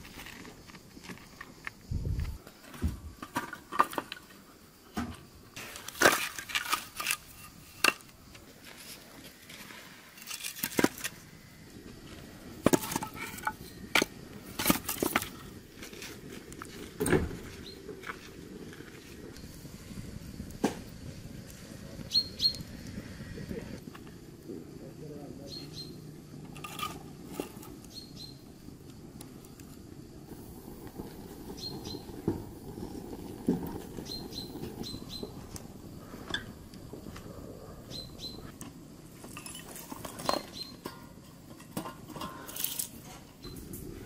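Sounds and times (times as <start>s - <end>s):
bricks and logs set down: 0.0s - 11.2s, 12.6s - 19.0s, 39.1s - 43.3s.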